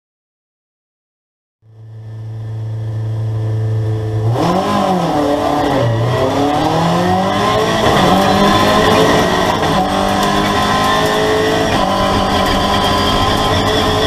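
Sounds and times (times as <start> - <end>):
race car engine revving: 3.4 - 14.0.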